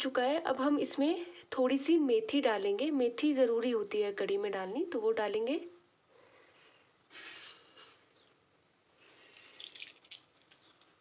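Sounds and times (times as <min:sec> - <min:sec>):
seeds crackling in oil: 0:09.0 - 0:11.0
seeds sizzling in hot oil: 0:09.0 - 0:11.0.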